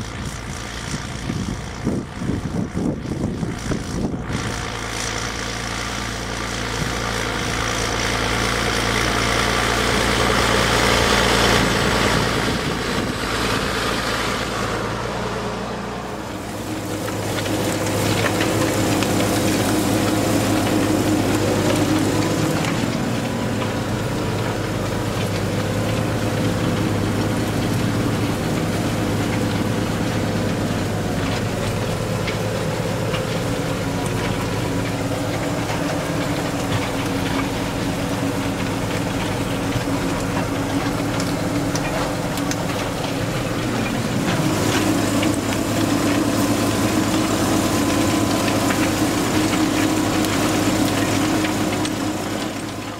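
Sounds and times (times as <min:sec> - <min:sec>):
tractor diesel engine under load: 0:00.0 - 0:52.9.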